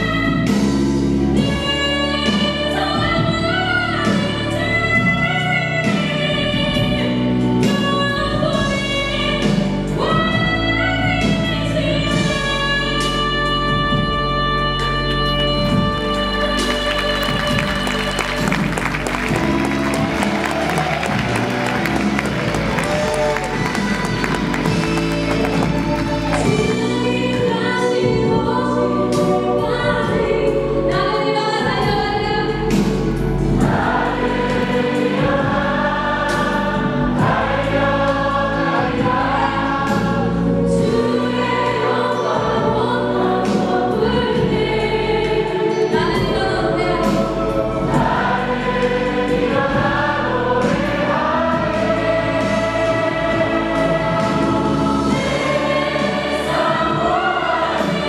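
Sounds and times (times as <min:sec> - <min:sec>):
woman singing into microphone: 0:00.0 - 0:18.4, 0:26.3 - 0:33.0, 0:40.6 - 0:48.1
instrumental accompaniment: 0:12.2 - 0:58.0.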